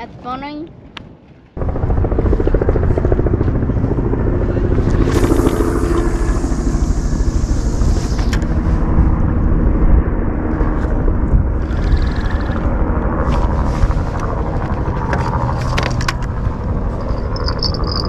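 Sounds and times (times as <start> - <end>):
wind buffeting microphone: 0.0 - 18.0
high hiss: 5.1 - 8.4.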